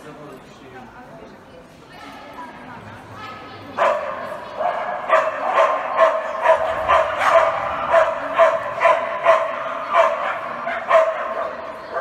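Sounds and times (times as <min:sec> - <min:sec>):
dog barking rapidly: 0:03.8 - 0:12.0.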